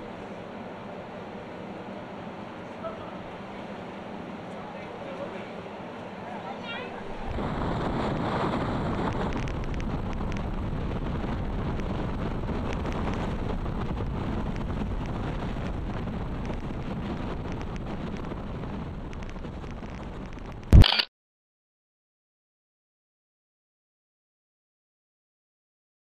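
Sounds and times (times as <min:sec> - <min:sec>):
ferry engine low rumble: 0:00.0 - 0:20.8
wind buffeting microphone: 0:07.0 - 0:20.8.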